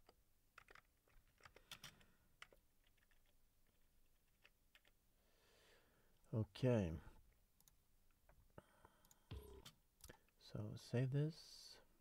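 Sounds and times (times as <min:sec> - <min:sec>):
computer keyboard keystrokes: 0:00.0 - 0:03.3.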